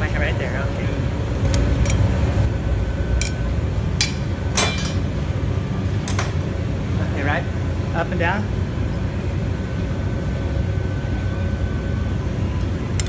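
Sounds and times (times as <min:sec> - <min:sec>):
low rumble of equipment: 0:00.0 - 0:13.0.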